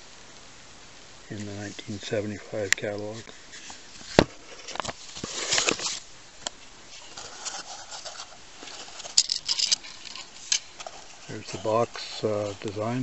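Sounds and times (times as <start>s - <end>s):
paper rustling: 1.4s - 6.1s, 6.9s - 13.0s.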